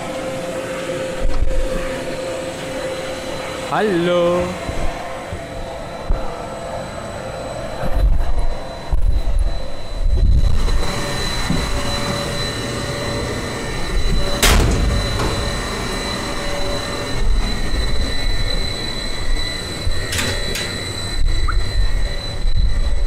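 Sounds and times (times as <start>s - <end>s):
thin high whine: 0.0s - 23.0s
locomotive machinery rumbling: 10.4s - 23.0s.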